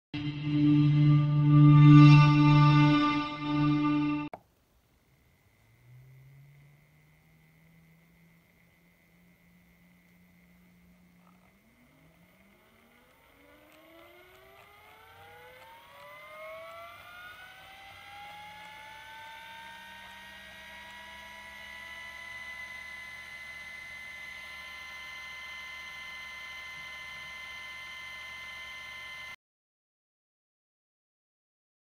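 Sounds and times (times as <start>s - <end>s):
stirrer motor whining: 5.3s - 29.4s.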